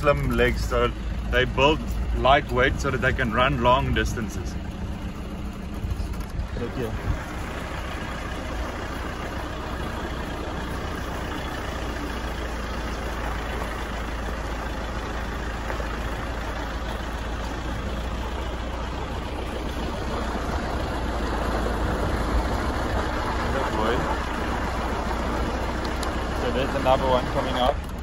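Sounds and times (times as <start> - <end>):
vehicle engine rumble: 0.0 - 28.0.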